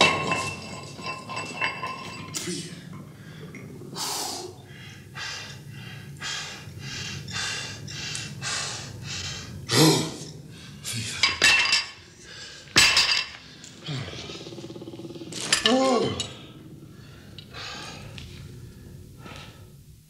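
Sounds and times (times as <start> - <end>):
man breathing hard: 2.8 - 10.9, 12.1 - 12.8, 16.2 - 19.8.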